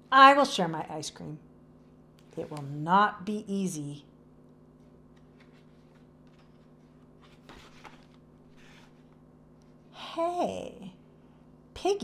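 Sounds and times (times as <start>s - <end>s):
book page turning: 4.8s - 9.2s.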